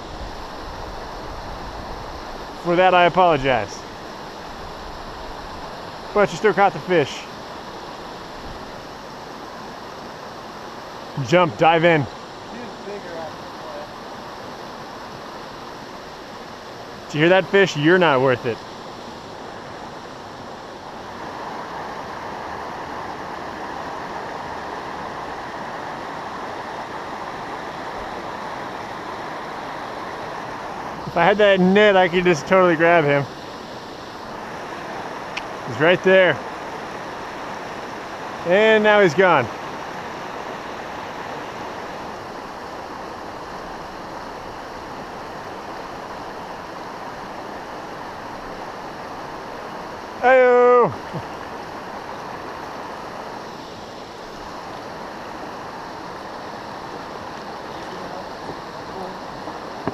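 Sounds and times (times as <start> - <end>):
water rushing over rocks: 0.0 - 59.9
water tumbling over rocks: 59.4 - 59.9.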